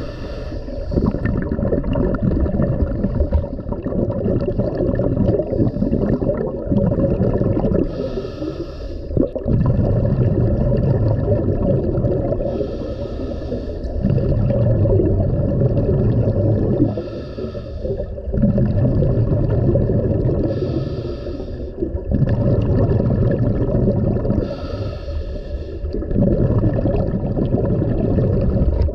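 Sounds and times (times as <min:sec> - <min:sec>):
diver inhaling hiss: 0:00.0 - 0:01.2, 0:07.8 - 0:09.2, 0:12.5 - 0:14.0, 0:16.8 - 0:18.2, 0:20.4 - 0:21.8, 0:24.4 - 0:26.0
bubbling underwater exhales: 0:00.0 - 0:28.9.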